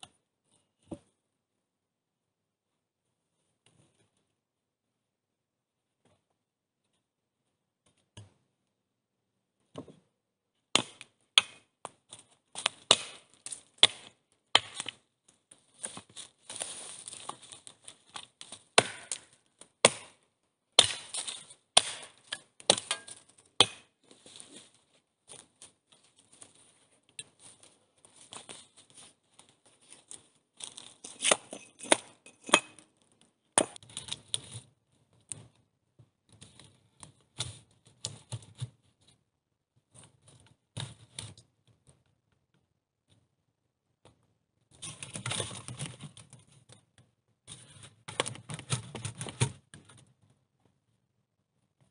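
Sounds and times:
axe chopping wood: 0:10.7 - 0:11.7, 0:12.6 - 0:15.0, 0:18.7 - 0:20.2, 0:20.8 - 0:24.0, 0:33.6 - 0:33.8.

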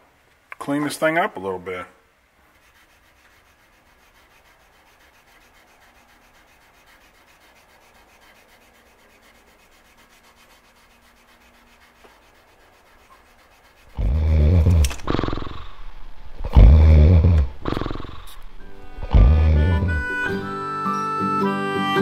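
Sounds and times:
sandpaper rubbing on steel: 0:02.4 - 0:20.7
sudden loud low sound: 0:14.0 - 0:20.6.

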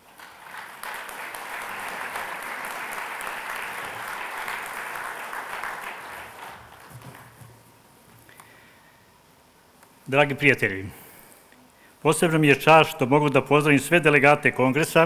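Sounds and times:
audience applauding: 0:00.0 - 0:07.7.

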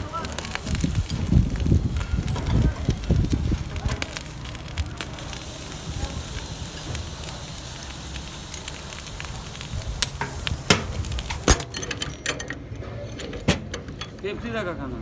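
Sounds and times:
hot steel hissing in water: 0:00.1 - 0:11.6.

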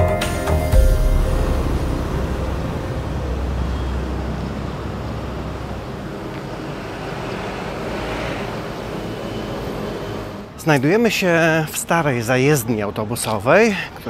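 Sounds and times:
street traffic rumble: 0:00.8 - 0:14.0
vehicle passing: 0:01.0 - 0:11.0.

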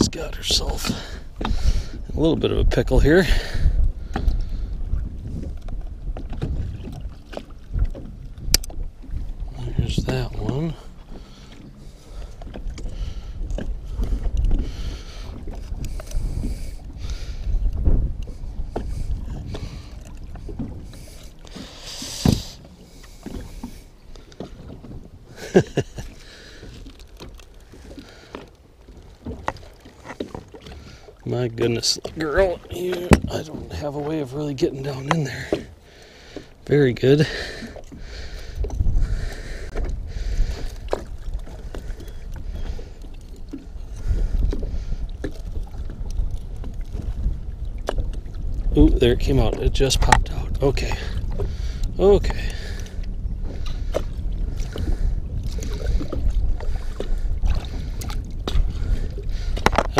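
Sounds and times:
water splashing and lapping: 0:00.0 - 0:59.9
wind rumbling on microphone: 0:00.0 - 0:59.9
splash and thump: 0:22.2 - 0:22.6.

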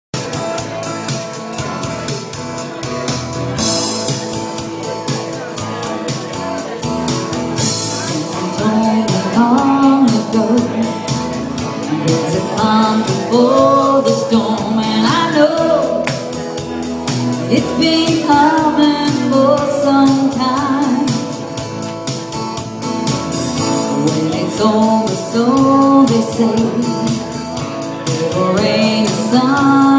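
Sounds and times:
acoustic guitar strumming: 0:00.2 - 0:29.9
person singing: 0:07.6 - 0:21.5, 0:23.7 - 0:29.9.

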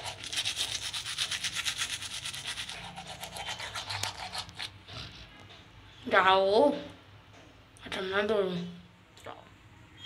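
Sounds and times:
toothbrush scrubbing teeth: 0:00.0 - 0:05.3.

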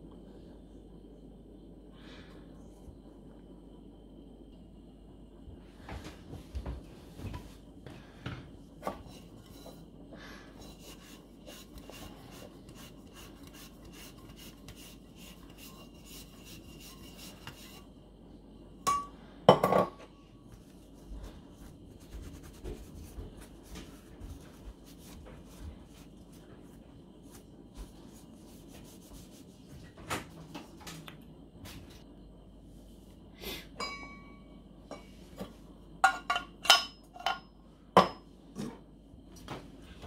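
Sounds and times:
cloth rubbing: 0:20.6 - 0:29.7.

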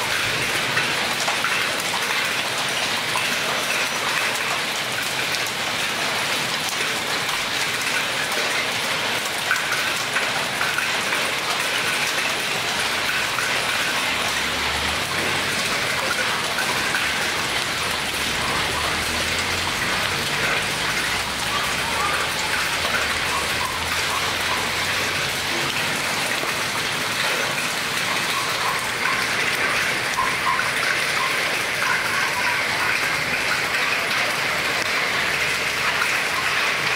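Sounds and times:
rain and hail pattering: 0:00.0 - 0:36.9.

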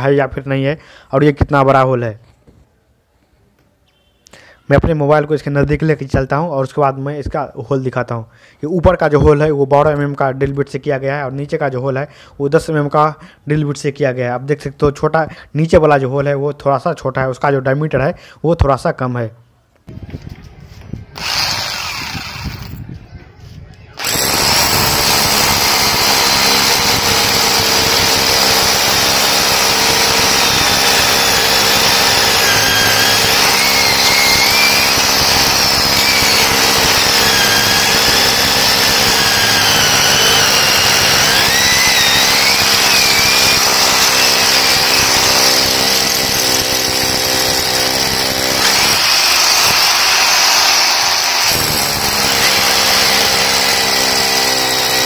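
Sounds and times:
rotary hammer drill into concrete: 0:21.2 - 0:22.8, 0:24.0 - 0:55.0.

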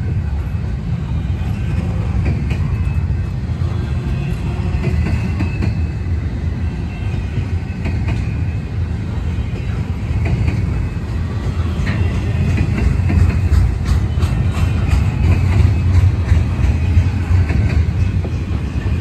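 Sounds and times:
freight train rumbling past: 0:00.0 - 0:19.0
wheels clacking over rail joints: 0:11.5 - 0:19.0.

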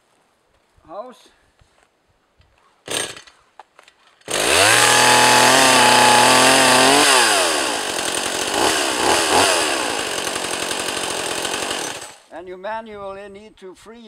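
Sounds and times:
chainsaw running: 0:02.9 - 0:03.3, 0:04.2 - 0:12.3.

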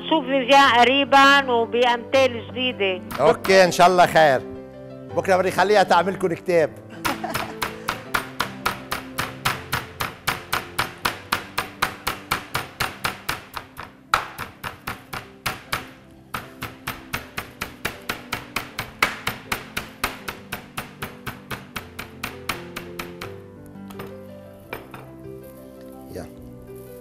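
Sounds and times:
background music: 0:00.0 - 0:27.0
rolling pin pounding meat: 0:03.1 - 0:03.9, 0:07.0 - 0:25.0.

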